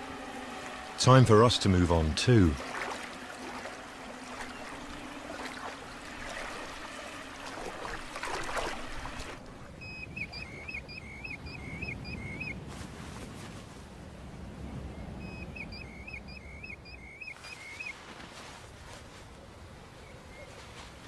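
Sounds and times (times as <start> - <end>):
footsteps splashing through water: 2.5 - 9.5.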